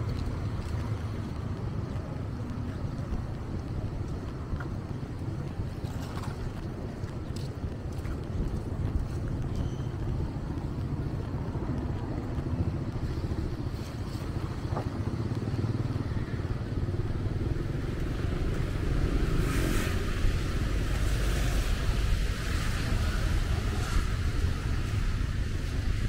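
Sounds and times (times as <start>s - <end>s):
motorbikes passing: 0.0s - 26.0s
cars passing: 10.2s - 26.0s.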